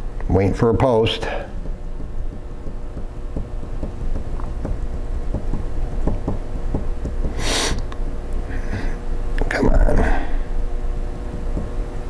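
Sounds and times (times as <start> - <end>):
low room rumble: 0.0 - 12.0
short breathy hiss: 7.4 - 7.9.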